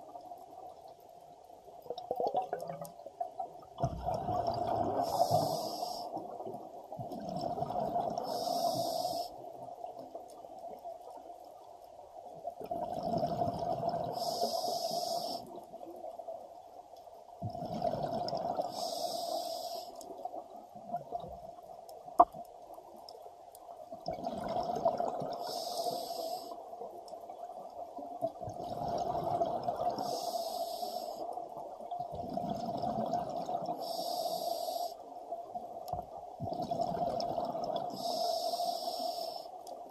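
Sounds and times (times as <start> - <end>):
steady underwater drone: 3.3 - 39.9
regulator breathing hiss and bubbles: 4.5 - 6.4, 7.6 - 9.6, 13.8 - 15.7, 17.8 - 20.2, 24.5 - 26.8, 29.0 - 31.3, 32.6 - 35.1, 36.9 - 39.7.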